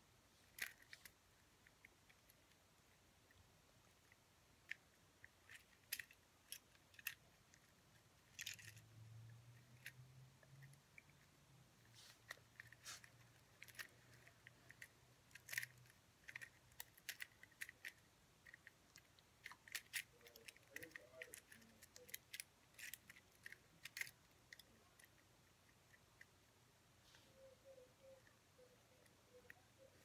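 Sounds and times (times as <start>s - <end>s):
rubik's cube clicking: 0.4s - 2.6s, 3.3s - 8.9s, 12.2s - 26.3s.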